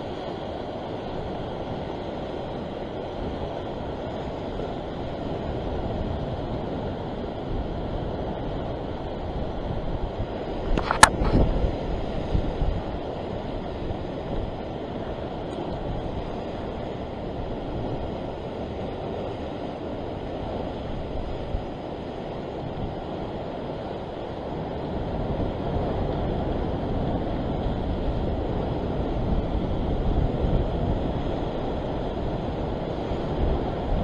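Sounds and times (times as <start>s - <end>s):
sea surf washing on rocky shore: 0.0s - 34.0s
wind rumbling on microphone: 0.0s - 34.0s.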